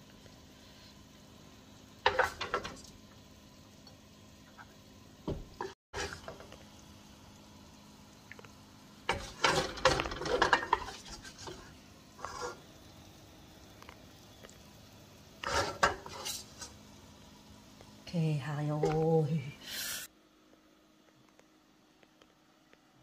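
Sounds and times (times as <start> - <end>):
wooden spatula scraping in wok: 5.6 - 6.5, 9.1 - 12.7, 15.4 - 16.8.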